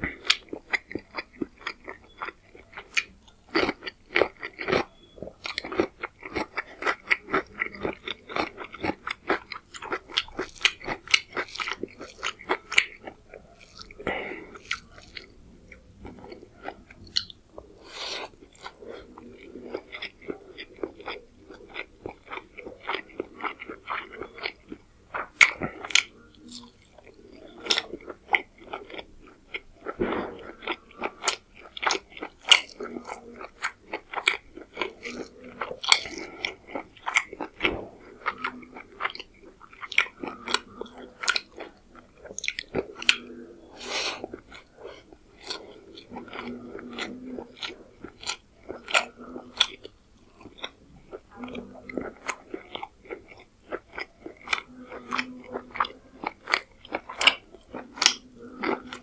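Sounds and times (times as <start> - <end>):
wet chewing mouth smacks: 8.4 - 51.2.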